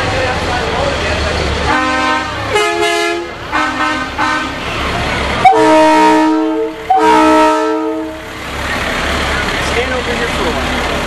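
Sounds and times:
truck horns honking: 0:01.6 - 0:09.6.

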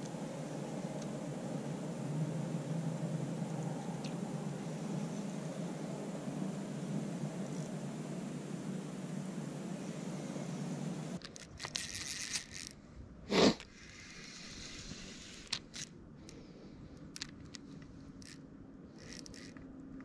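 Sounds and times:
low rushing noise: 0:00.0 - 0:11.2
handling scrapes and clicks: 0:11.2 - 0:12.8, 0:13.4 - 0:16.4, 0:17.0 - 0:20.0.

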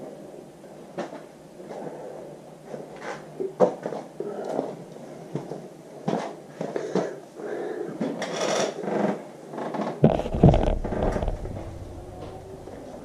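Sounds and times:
handling clicks and knocks: 0:10.0 - 0:13.0
rustling: 0:10.0 - 0:13.0.

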